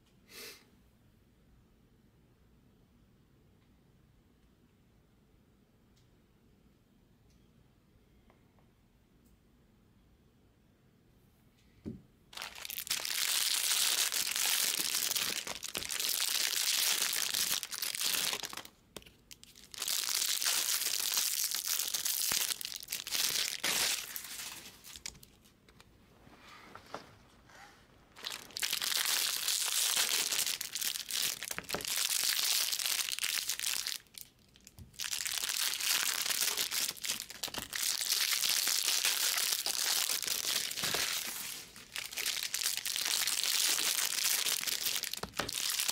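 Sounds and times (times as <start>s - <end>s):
card packs and boxes crinkling: 12.4s - 25.8s, 28.1s - 45.9s.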